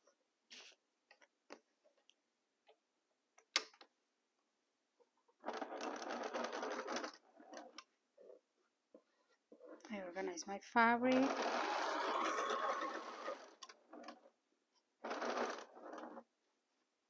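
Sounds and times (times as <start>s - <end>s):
sewing machine stitching: 5.4s - 8.4s, 11.0s - 14.4s, 15.0s - 16.3s.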